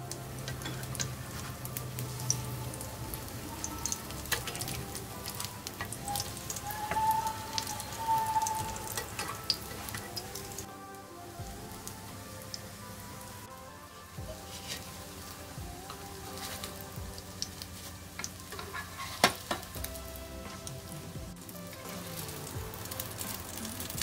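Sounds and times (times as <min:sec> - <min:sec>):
fritters sizzling in oil: 0:00.0 - 0:24.0
oil crackling: 0:00.0 - 0:24.0
spatulas clicking against pan: 0:03.6 - 0:07.0, 0:08.4 - 0:10.6, 0:18.2 - 0:19.7.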